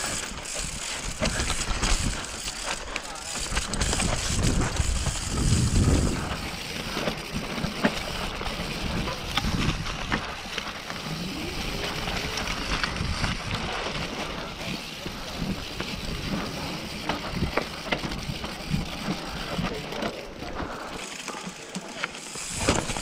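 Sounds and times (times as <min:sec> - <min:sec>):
bike clicks and knocks: 0:00.0 - 0:23.0
bike tyres rolling on dirt: 0:00.0 - 0:23.0.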